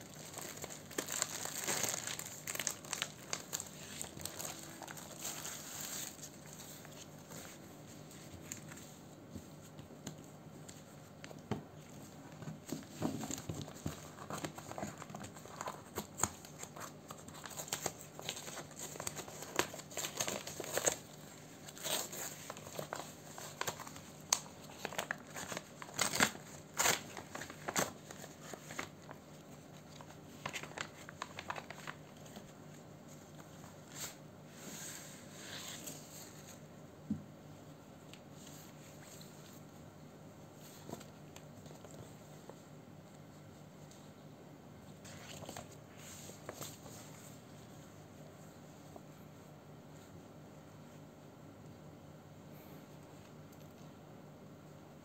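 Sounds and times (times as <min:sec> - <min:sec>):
paper envelope rustling: 0:00.0 - 0:09.0, 0:12.4 - 0:34.2.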